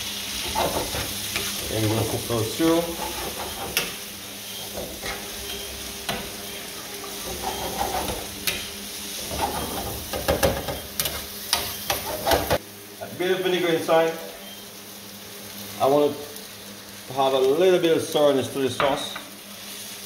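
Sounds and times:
vegetables sizzling in frying pan: 0:00.0 - 0:20.0
metal spoon scraping pan: 0:00.4 - 0:06.2, 0:07.0 - 0:08.6, 0:09.2 - 0:10.0.

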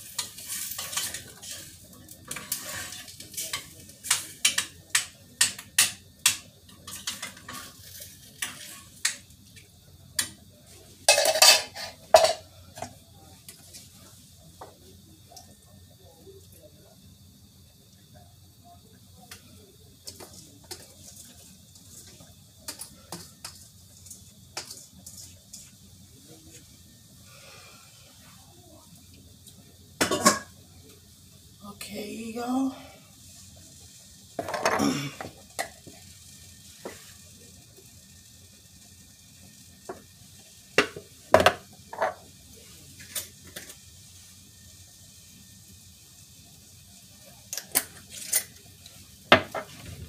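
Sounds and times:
pots and pans clattering: 0:00.0 - 0:09.3, 0:11.0 - 0:12.9, 0:30.0 - 0:30.6, 0:34.4 - 0:36.0, 0:40.7 - 0:42.3, 0:49.3 - 0:50.0
kitchenware clicking and knocking: 0:11.1 - 0:12.4.

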